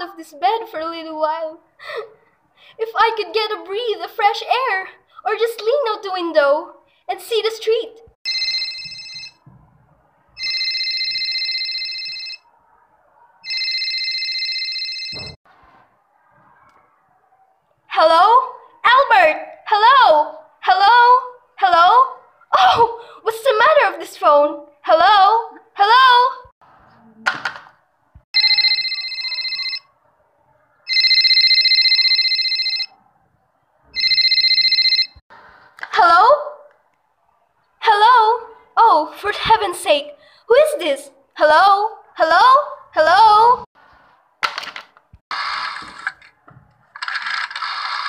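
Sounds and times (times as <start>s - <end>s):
telephone ringing: 8.3s - 9.4s, 10.4s - 12.4s, 13.4s - 15.4s, 28.4s - 29.9s, 30.9s - 33.0s, 34.0s - 35.2s.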